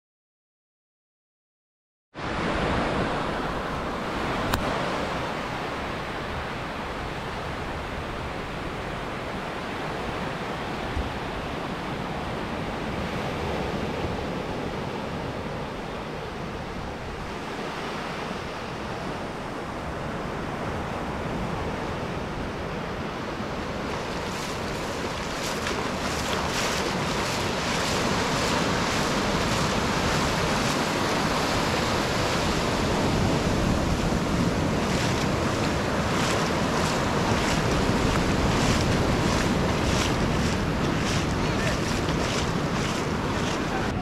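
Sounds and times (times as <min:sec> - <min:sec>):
small waves breaking on sand: 0:02.2 - 0:44.0
wind buffeting microphone: 0:18.8 - 0:44.0.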